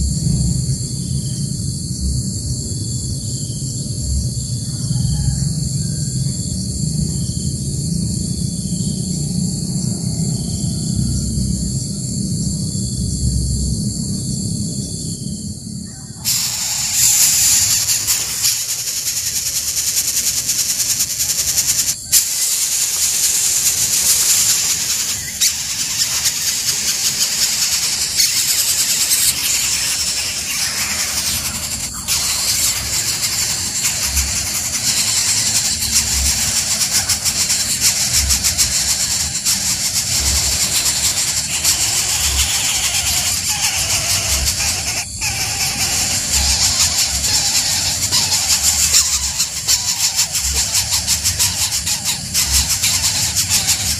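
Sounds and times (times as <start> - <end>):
chicks begging squeals: 15.9 - 53.9.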